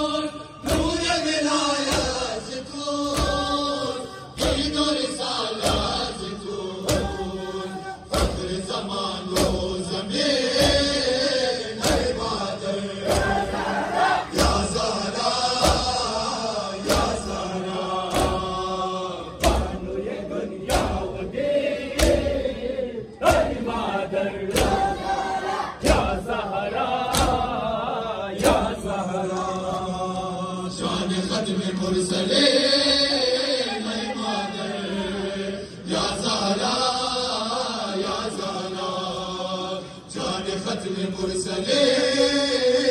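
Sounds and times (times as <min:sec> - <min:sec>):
men chanting a lament: 0:00.0 - 0:42.9
hands slapping chests in unison: 0:00.6 - 0:29.9.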